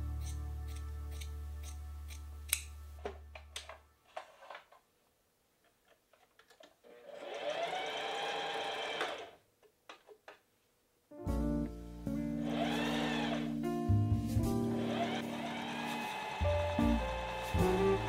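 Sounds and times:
sewing machine running: 6.9s - 9.4s, 12.5s - 13.4s, 14.8s - 18.0s.

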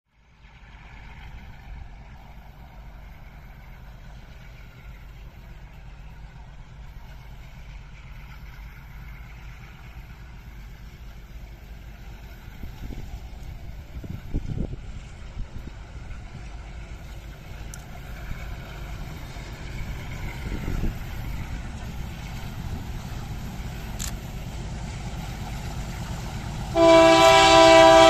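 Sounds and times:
low outdoor rumble: 0.2s - 28.0s
wind buffeting microphone: 12.3s - 26.6s.

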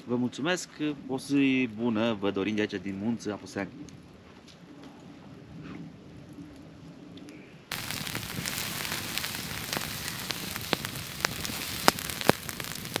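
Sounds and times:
campfire crackling and popping: 7.7s - 13.0s.

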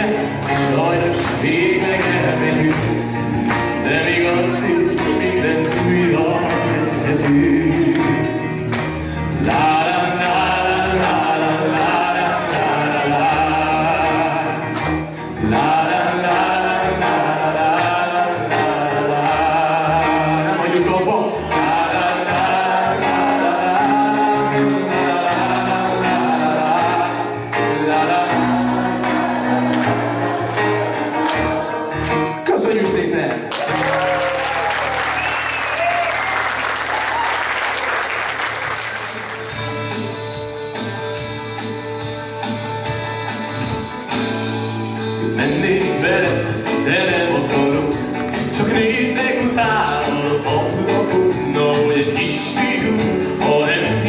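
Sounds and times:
man singing: 0.0s - 8.6s, 9.2s - 29.3s, 45.0s - 54.0s.

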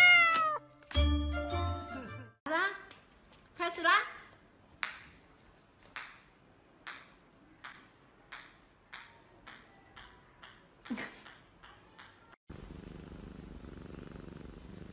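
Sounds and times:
cat meowing: 0.0s - 0.6s
ball bouncing on tile floor: 4.8s - 5.2s, 5.8s - 12.4s.

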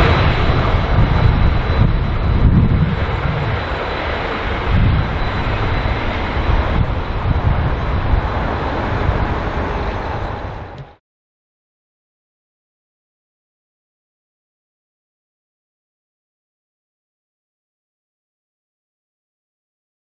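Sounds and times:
diesel locomotives rumbling past: 0.0s - 11.0s
thin high whine: 0.0s - 11.0s.

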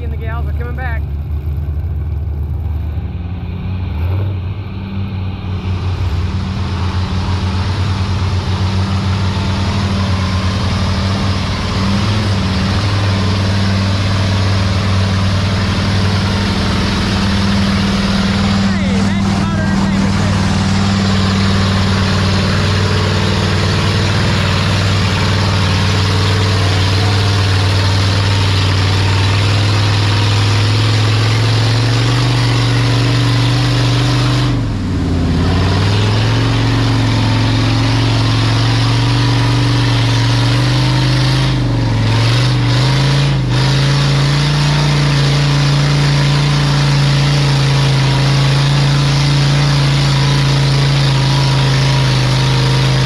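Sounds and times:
off-road vehicle engine running: 0.0s - 53.0s.

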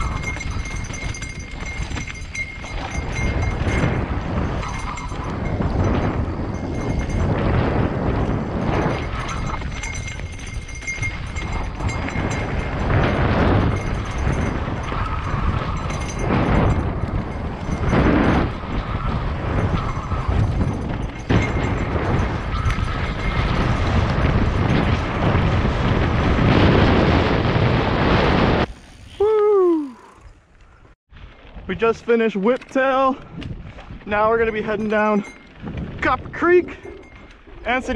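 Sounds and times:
wind rushing over microphone: 0.0s - 32.4s, 33.0s - 37.9s
bike tyres rattling over rocks: 0.0s - 37.9s.

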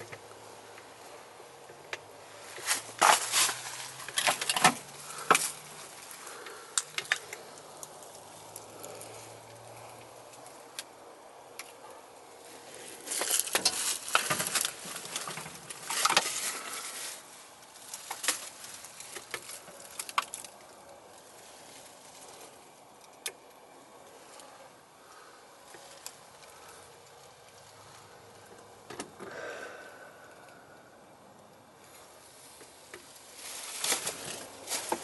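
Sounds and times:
footsteps on dry leaves: 2.2s - 6.6s, 12.5s - 19.0s, 33.2s - 35.0s.

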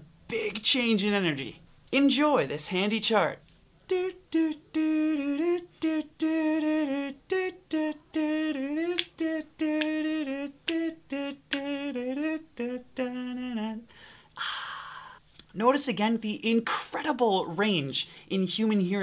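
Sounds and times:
man humming a tune: 3.9s - 15.2s.

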